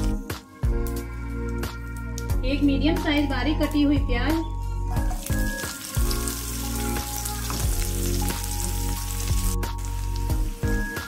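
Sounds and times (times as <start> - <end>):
background music with held notes: 0.0 - 11.0
onion sizzling in hot oil: 4.9 - 11.0.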